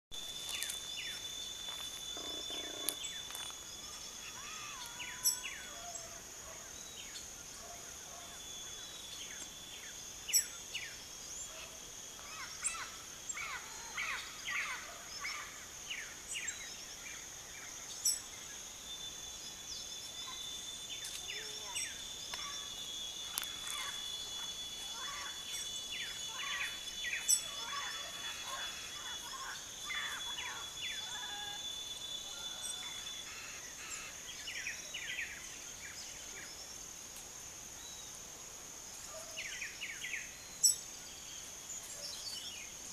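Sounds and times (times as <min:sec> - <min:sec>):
bird chirps: 0:00.1 - 0:06.1, 0:17.8 - 0:36.6
high insect drone: 0:00.1 - 0:42.9.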